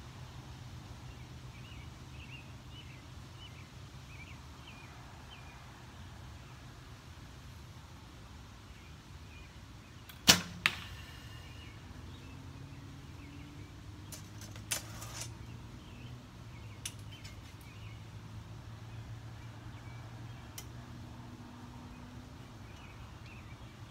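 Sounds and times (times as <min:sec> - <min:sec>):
arrow striking foam target: 0:10.1 - 0:11.0
brief rustle: 0:14.1 - 0:15.4.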